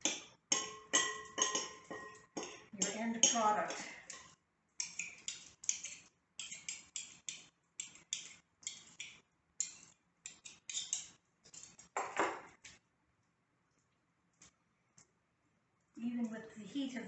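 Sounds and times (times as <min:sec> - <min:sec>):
knives scraping in ceramic bowl: 0:00.6 - 0:12.0.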